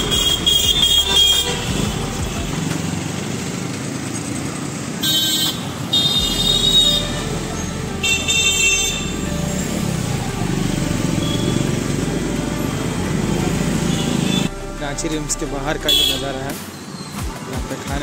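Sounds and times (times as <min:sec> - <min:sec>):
vehicle horn honking: 0:00.0 - 0:02.6, 0:05.0 - 0:09.9, 0:13.7 - 0:14.6, 0:15.9 - 0:16.5
motorcycles and cars passing: 0:00.0 - 0:14.5.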